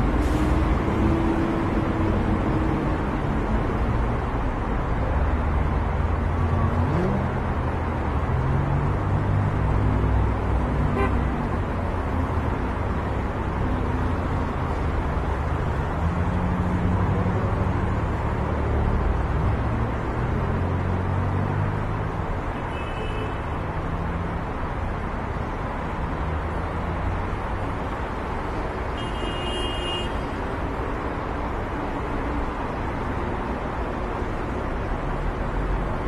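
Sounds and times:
road traffic passing: 0:00.0 - 0:36.0
car horn toot: 0:10.9 - 0:11.3, 0:29.0 - 0:30.3.

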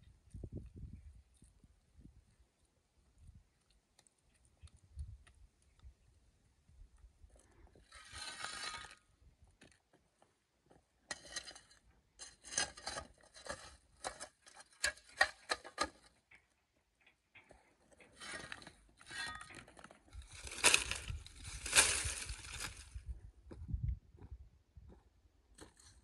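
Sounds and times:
shovel scraping charcoal: 0:07.8 - 0:09.1, 0:11.1 - 0:16.1, 0:18.0 - 0:22.9
dry thatch rustling and crackling: 0:20.1 - 0:23.0
charcoal clattering: 0:20.2 - 0:22.8.

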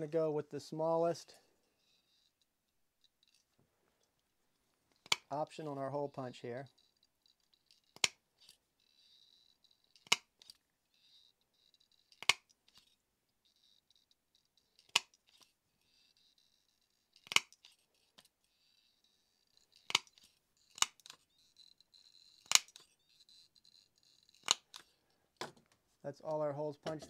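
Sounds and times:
faint handling noise: 0:24.5 - 0:27.0.

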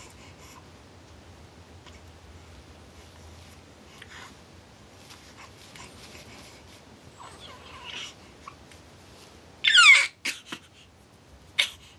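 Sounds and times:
baby whimpering and crying: 0:07.2 - 0:08.2, 0:09.6 - 0:10.5.

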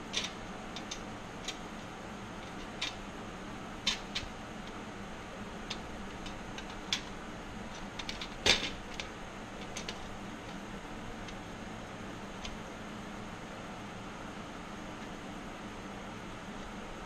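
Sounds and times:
steady low hum: 0:00.0 - 0:17.0
metal parts clicking and tapping: 0:00.1 - 0:01.6, 0:03.8 - 0:04.8, 0:05.7 - 0:10.6.

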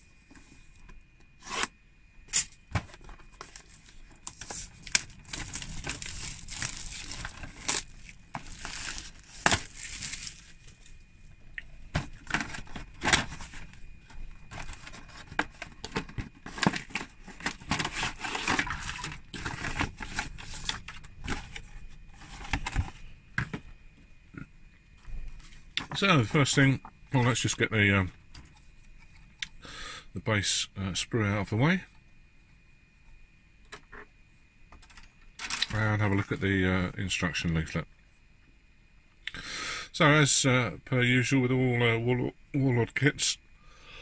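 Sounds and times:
packaging tearing and crinkling: 0:03.4 - 0:10.9, 0:14.5 - 0:21.6.

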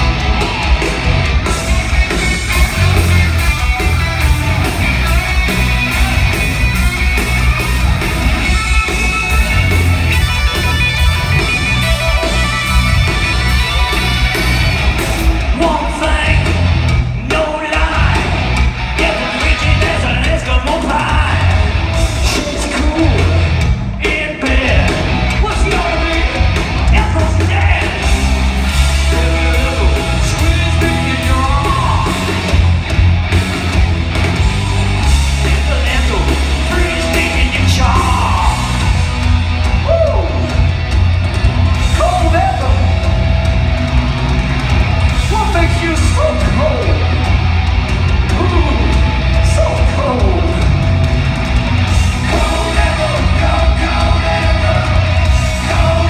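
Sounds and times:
live hard rock band: 0:00.0 - 0:56.0
shouted lead vocal: 0:15.5 - 0:32.6, 0:35.0 - 0:40.7, 0:41.8 - 0:43.1, 0:45.2 - 0:47.2, 0:48.2 - 0:50.8, 0:51.9 - 0:56.0.

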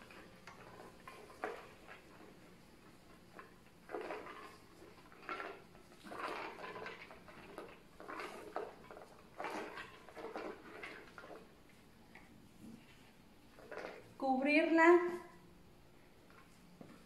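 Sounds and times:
ice chips shifting: 0:03.9 - 0:11.5.

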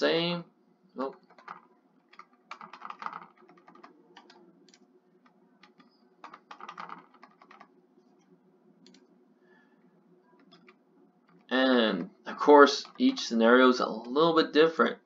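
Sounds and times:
computer keyboard typing: 0:01.0 - 0:09.1, 0:10.3 - 0:11.6, 0:12.5 - 0:13.4.

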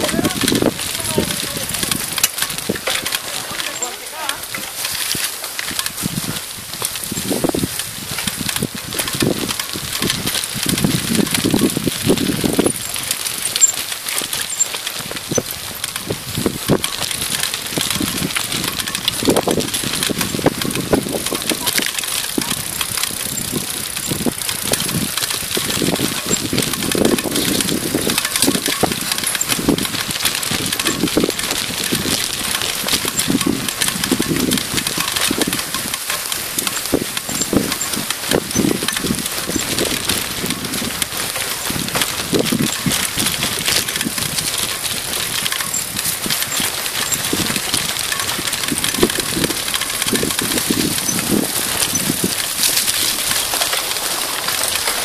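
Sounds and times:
bike rattling: 0:00.0 - 0:55.0
bike tyres on gravel trail: 0:00.0 - 0:55.0.

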